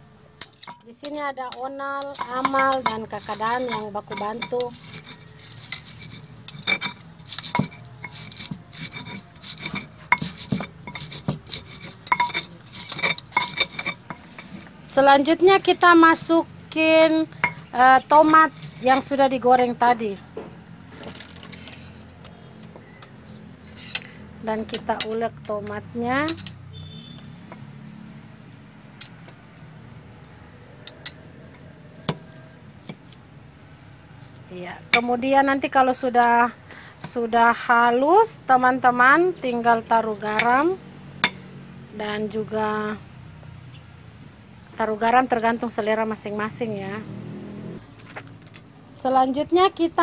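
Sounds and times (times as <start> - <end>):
stone pestle grinding: 0.4 - 14.8, 16.8 - 19.4, 23.6 - 26.6
pestle knocking in stone mortar: 6.5 - 14.7.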